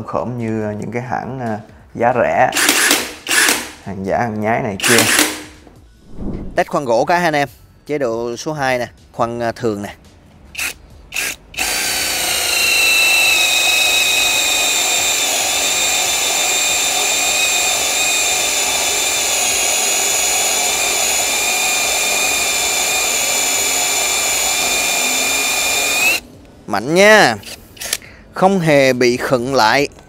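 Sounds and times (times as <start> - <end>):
drill boring into wood: 2.6 - 3.8, 4.8 - 5.5, 10.6 - 26.2.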